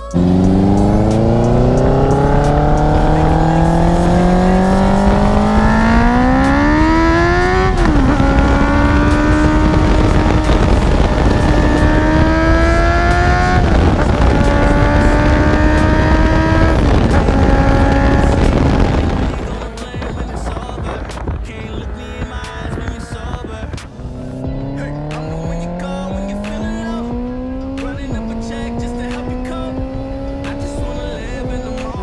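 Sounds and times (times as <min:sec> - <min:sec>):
motorcycle engine accelerating: 0:00.0 - 0:32.0.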